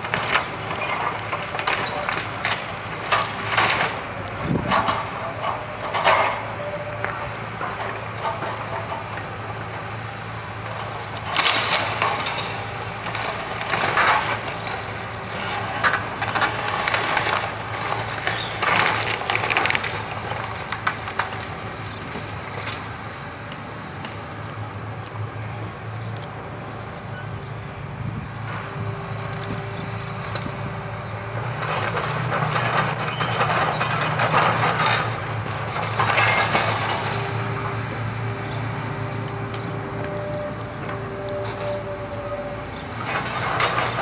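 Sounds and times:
excavator diesel engine running: 0.0s - 44.0s
wood and debris crashing: 11.2s - 21.5s, 31.4s - 37.3s
knocks and creaks: 31.4s - 37.3s.

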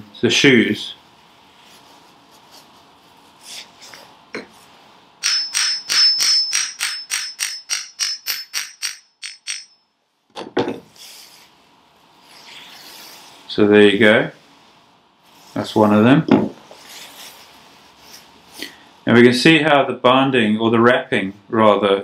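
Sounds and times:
ringing metal-on-metal strikes: 5.2s - 9.9s.

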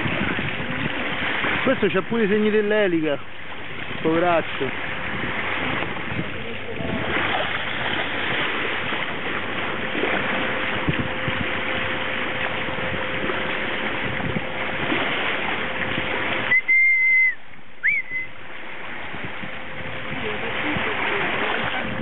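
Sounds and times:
engine hum: 0.0s - 22.0s
water rushing past a boat: 0.0s - 22.0s
loud high whistles: 16.5s - 18.4s.

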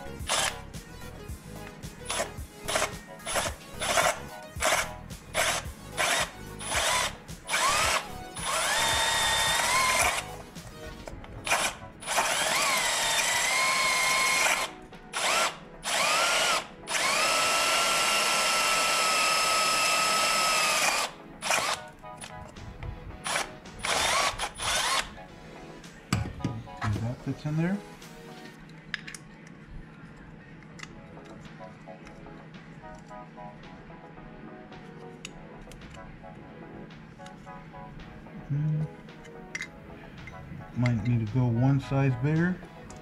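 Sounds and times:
cordless drill motor whine: 0.2s - 0.6s, 2.1s - 10.4s, 11.5s - 21.9s, 23.2s - 25.1s.

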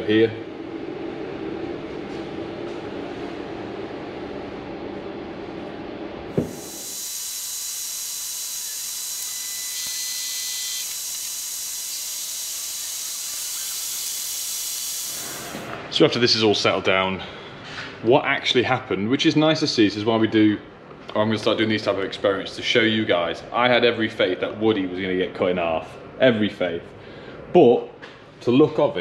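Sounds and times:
welder humming: 6.3s - 15.8s
burning cable hissing: 6.4s - 15.7s
click: 10.8s - 11.4s.

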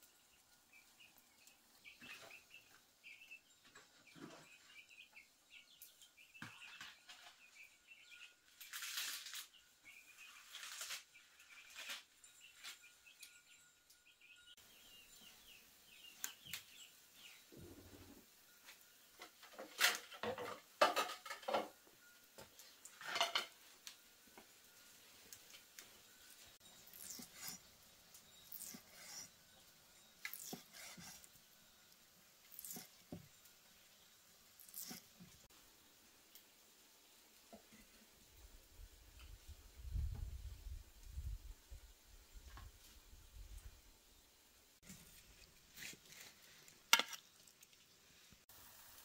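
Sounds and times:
birds chirping: 0.0s - 8.7s
objects being handled: 44.8s - 48.0s.

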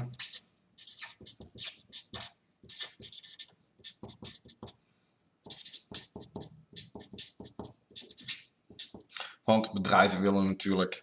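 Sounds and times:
marker writing on paper: 0.0s - 4.8s, 5.4s - 9.1s.

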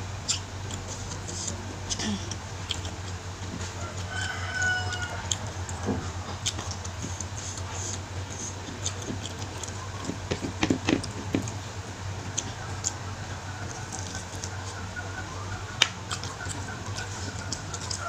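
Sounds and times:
steady low hum: 0.0s - 18.0s
wet chewing clicks and smacks: 0.2s - 18.0s.

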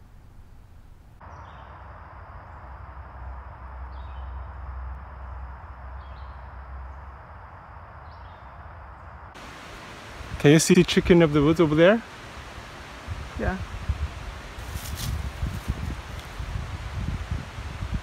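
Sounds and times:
faint high whine: 0.0s - 18.0s
steady hiss: 9.3s - 18.0s.

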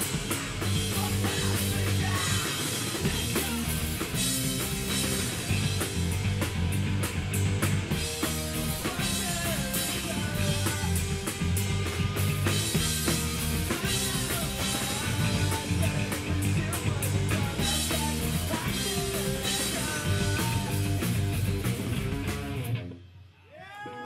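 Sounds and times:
drum kit beat: 0.0s - 22.8s
distorted electric guitars: 0.0s - 23.2s
electric bass: 0.0s - 23.2s.

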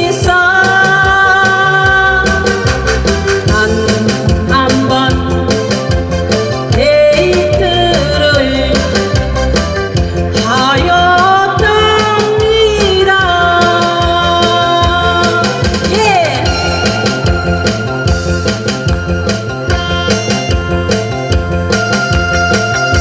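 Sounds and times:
woman singing into microphone: 0.0s - 6.0s, 6.7s - 9.2s, 10.2s - 17.7s
musical accompaniment with beat: 0.0s - 23.0s.

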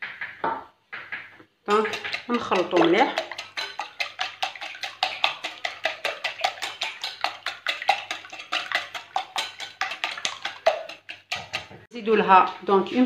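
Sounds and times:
whisk clicking against glass bowl: 1.7s - 11.8s.

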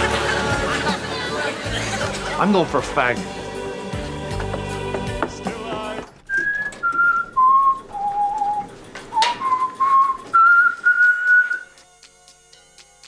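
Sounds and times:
man whistling slow tune: 6.3s - 11.8s.

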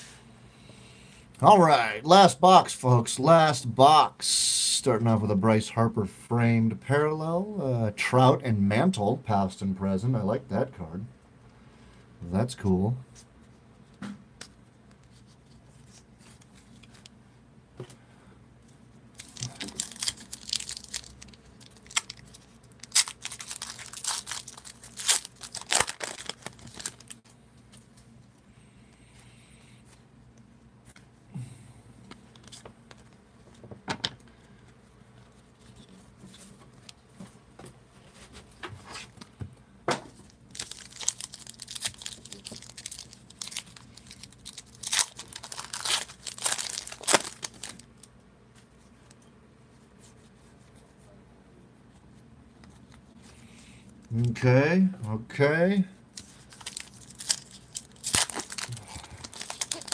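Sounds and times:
foil wrappers tearing and crinkling: 19.2s - 27.2s, 40.5s - 48.1s, 56.2s - 59.9s
cards clicking and rustling: 19.2s - 27.9s, 40.6s - 47.8s, 56.2s - 59.9s.

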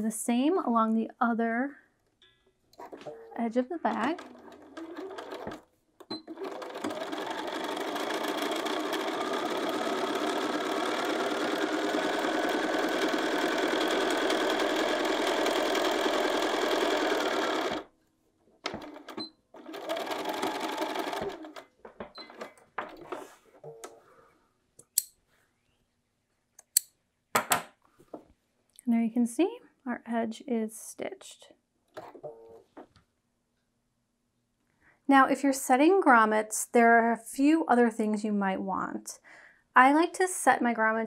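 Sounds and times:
sewing machine stitching: 2.8s - 17.9s, 18.6s - 23.3s.

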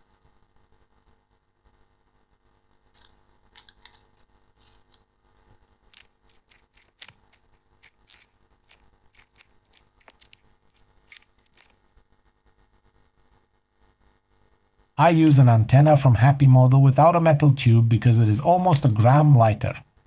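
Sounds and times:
parts being handled: 2.9s - 5.1s, 5.7s - 11.9s
small screwdriver clicks: 5.9s - 11.7s.

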